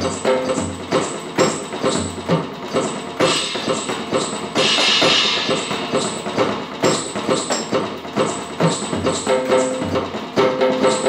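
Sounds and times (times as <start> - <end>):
electronic drum beat: 0.0 - 11.0
cymbal crash: 3.2 - 7.8.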